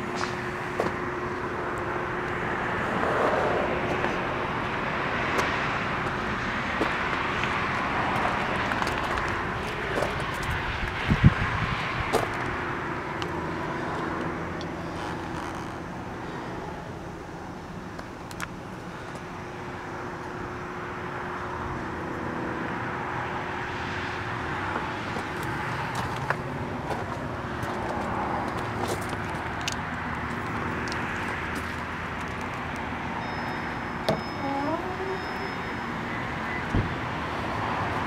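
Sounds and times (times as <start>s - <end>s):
road traffic noise: 0.0s - 38.0s
brief rising squeal: 33.2s - 36.7s.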